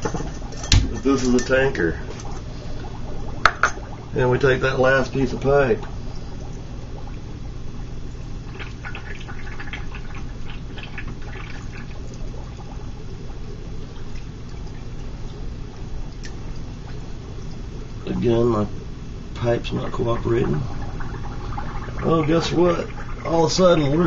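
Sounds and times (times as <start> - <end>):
steady low hum: 0.0 - 24.0
water splashing in a fish tank: 3.2 - 18.0.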